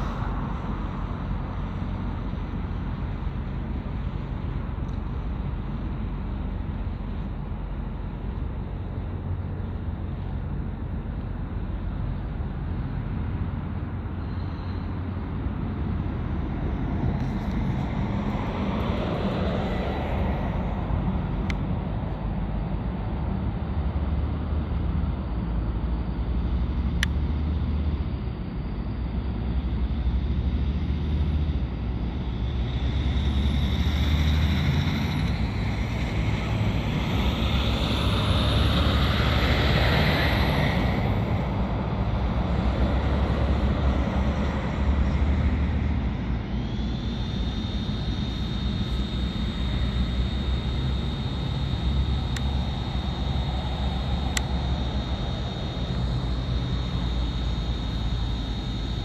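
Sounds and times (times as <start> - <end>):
airplane engines rumbling: 0.0 - 59.0
steady high whine: 0.0 - 59.0.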